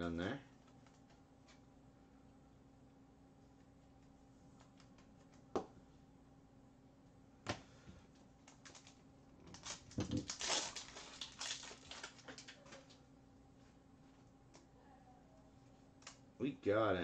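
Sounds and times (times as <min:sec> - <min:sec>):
plastic rustling and clicking: 0:08.4 - 0:13.0.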